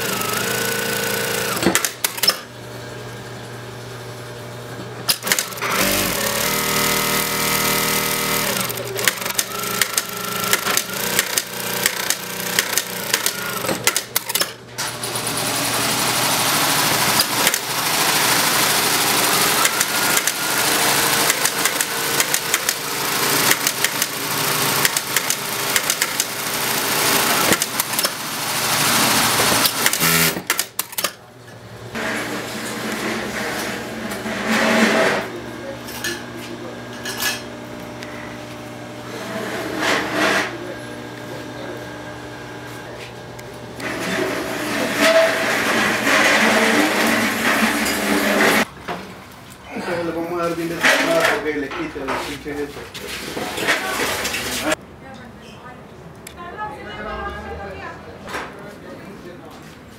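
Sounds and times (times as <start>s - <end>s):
sewing machine motor whine: 0.0s - 2.5s, 5.1s - 31.1s
sewing machine needle clatter: 5.1s - 14.5s, 19.0s - 28.2s.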